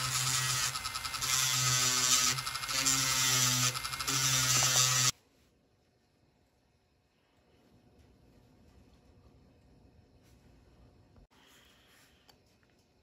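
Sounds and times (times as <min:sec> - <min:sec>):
rotary tool drilling: 0:00.0 - 0:05.1.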